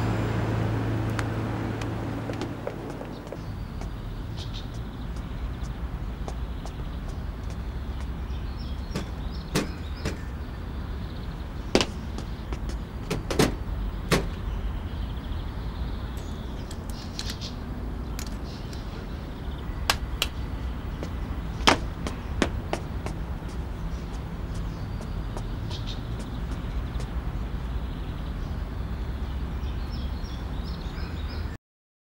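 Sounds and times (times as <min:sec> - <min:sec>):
steady low rumble: 0:00.0 - 0:29.0
sharp knocks and clacks: 0:08.9 - 0:10.3, 0:11.8 - 0:14.4, 0:21.0 - 0:27.2.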